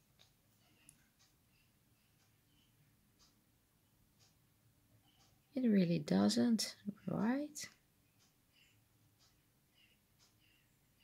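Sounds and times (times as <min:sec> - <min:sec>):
faint soft ticks: 0:00.0 - 0:01.6.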